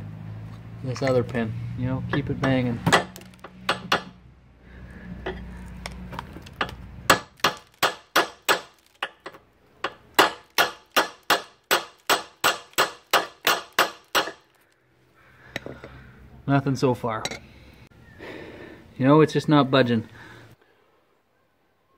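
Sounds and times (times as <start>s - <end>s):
hammer striking steel pin: 2.4s - 4.2s.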